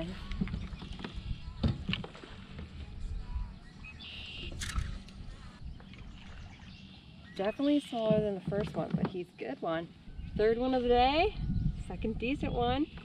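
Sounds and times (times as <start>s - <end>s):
bird chirp: 2.8s - 8.1s, 9.2s - 13.0s.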